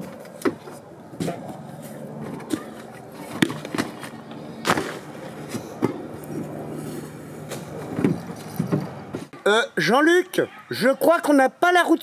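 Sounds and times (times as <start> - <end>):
steady low hum: 0.0 - 9.4
knocks and clatter of luggage: 7.6 - 9.3.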